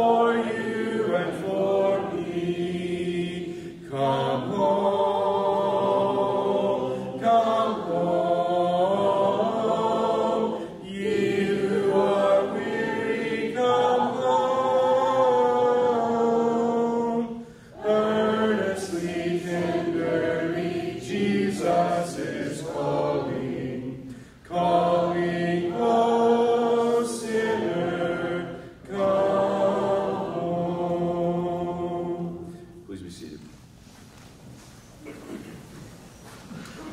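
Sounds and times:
congregation singing a hymn: 0.0s - 33.0s.

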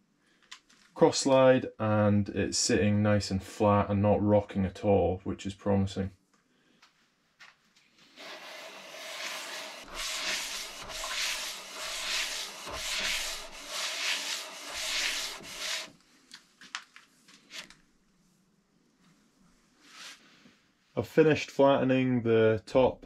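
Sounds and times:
metal block scraping on sandpaper: 8.1s - 15.9s.

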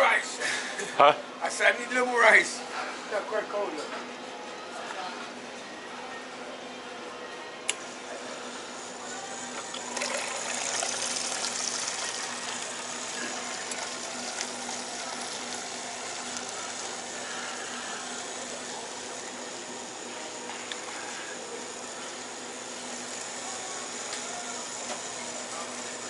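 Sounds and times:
soda pouring into cup: 9.7s - 17.2s.

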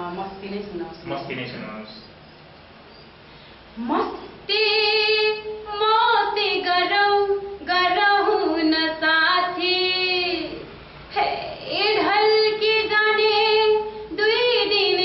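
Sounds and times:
woman singing unaccompanied: 3.8s - 15.0s.

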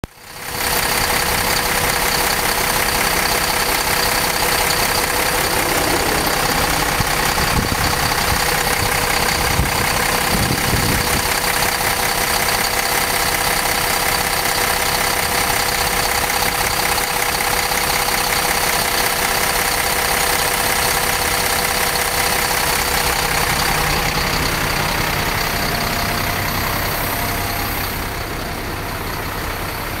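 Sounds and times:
diesel bus engine idling: 0.0s - 30.0s
high whine: 2.2s - 11.3s.

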